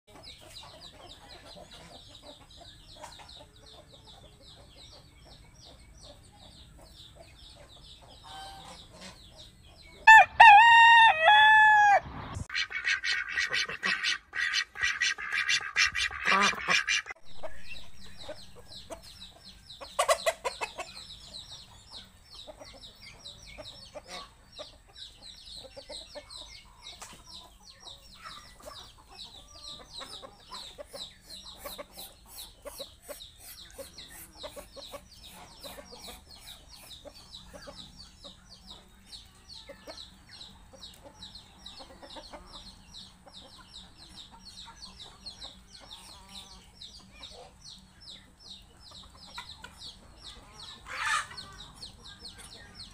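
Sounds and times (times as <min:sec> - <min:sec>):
chickens clucking: 0:00.1 - 0:52.9.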